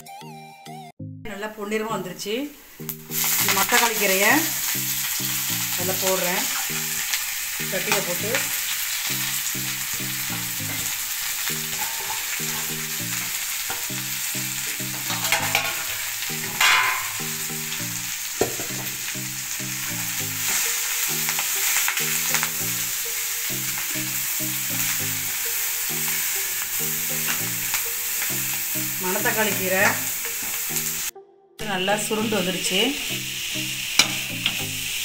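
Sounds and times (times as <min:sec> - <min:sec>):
faint tune: 0:00.0 - 0:34.9
greens sizzling in hot oil: 0:02.8 - 0:31.1, 0:31.9 - 0:35.0
metal ladle scraping pan: 0:09.2 - 0:13.9, 0:14.8 - 0:17.5.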